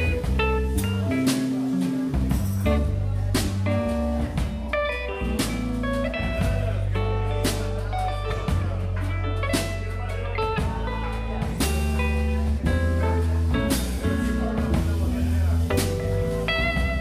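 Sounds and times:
drum kit: 0.0s - 17.0s
electric bass: 0.0s - 17.0s.

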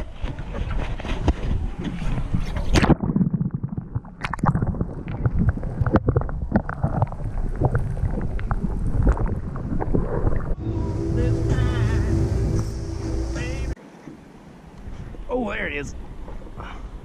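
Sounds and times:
underwater knocks and clicks: 0.0s - 10.6s
water splashing: 0.0s - 13.8s
underwater rumble of moving water: 1.4s - 13.8s
underwater bubbling: 2.2s - 13.8s.

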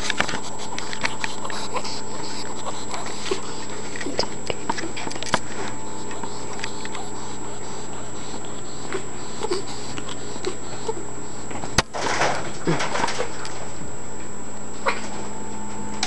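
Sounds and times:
squirrel breathing hard and wheezing: 0.0s - 11.6s.

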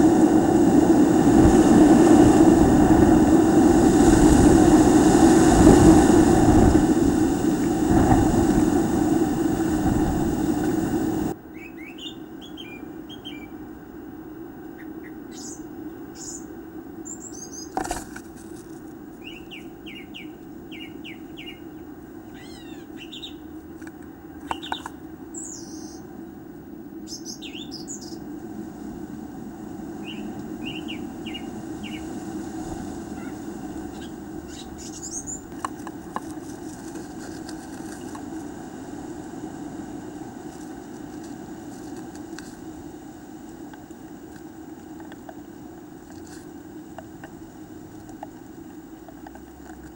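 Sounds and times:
steady low hum: 0.0s - 49.9s
songbirds chirping: 11.4s - 13.8s, 14.6s - 17.9s, 19.0s - 28.3s, 29.9s - 32.2s, 32.8s - 36.0s.

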